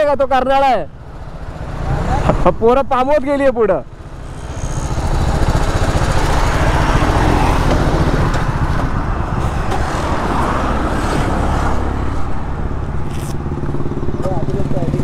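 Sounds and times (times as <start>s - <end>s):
wind and road rush: 0.0s - 15.0s
motorcycle engine running: 3.8s - 10.0s, 12.2s - 15.0s.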